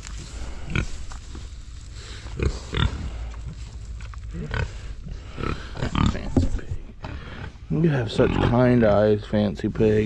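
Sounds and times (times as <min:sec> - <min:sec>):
pigs grunting: 0:00.3 - 0:01.2, 0:02.0 - 0:09.0.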